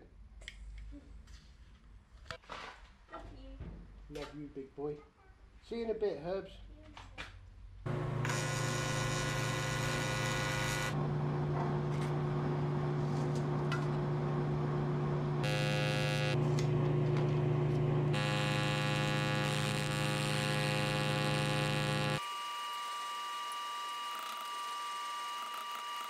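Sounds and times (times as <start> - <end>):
welding arc buzzing: 7.9 - 11.0, 15.4 - 26.0.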